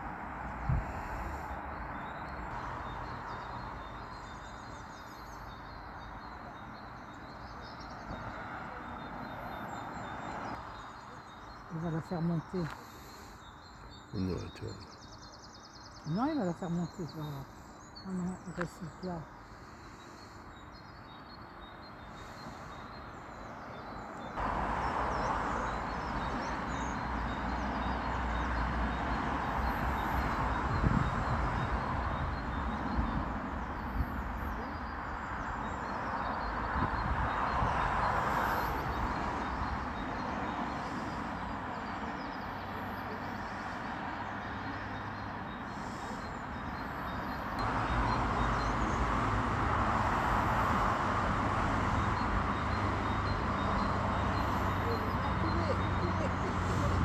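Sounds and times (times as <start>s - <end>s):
small birds chirping: 0.1s - 49.2s, 51.9s - 57.0s
vehicle engine rumble: 36.4s - 57.0s.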